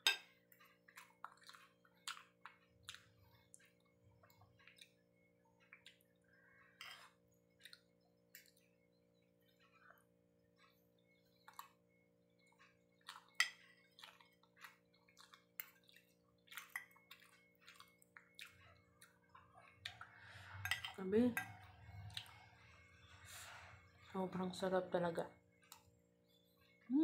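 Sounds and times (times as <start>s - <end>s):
chewing: 0.5s - 6.2s, 7.0s - 8.8s, 9.4s - 20.3s
spoon and fork scraping a plate: 6.7s - 7.2s, 20.4s - 21.7s.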